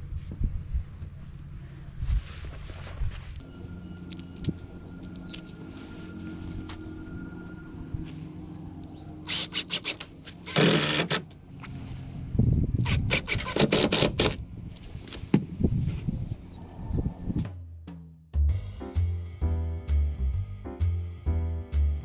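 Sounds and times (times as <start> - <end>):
cordless drill driving screws: 9.3 - 11.2, 12.9 - 14.4.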